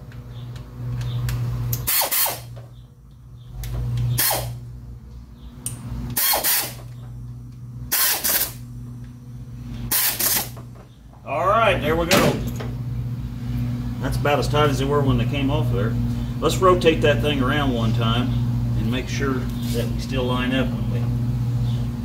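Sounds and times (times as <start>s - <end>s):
steady low hum: 0.0s - 22.0s
ratchet wrench clicking: 1.7s - 2.4s, 4.1s - 4.6s, 6.1s - 6.8s, 7.9s - 8.6s, 9.9s - 10.6s.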